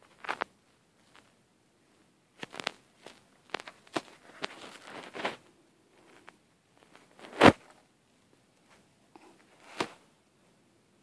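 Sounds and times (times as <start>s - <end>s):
microphone handling noise: 7.0s - 7.7s.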